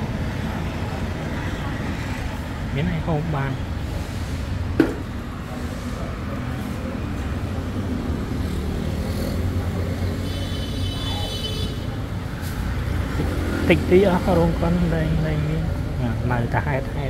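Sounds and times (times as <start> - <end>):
traffic rumble: 0.0 - 17.0
sharp knock: 4.8 - 5.1.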